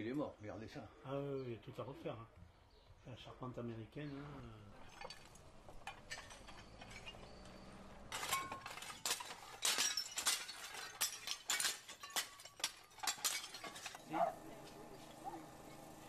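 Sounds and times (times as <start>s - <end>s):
clay roof tiles clattering: 4.1s - 16.0s.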